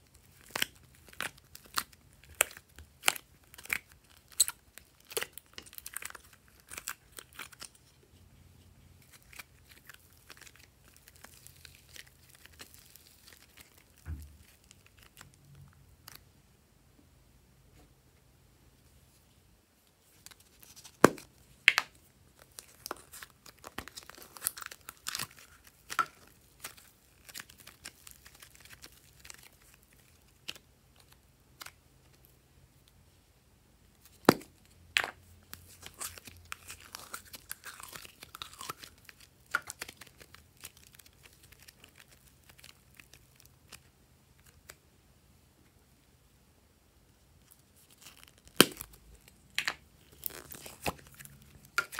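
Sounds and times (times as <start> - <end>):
slime tearing and crackling: 0.1 - 7.8, 9.0 - 15.4, 20.3 - 31.8, 35.5 - 44.8, 47.5 - 51.9.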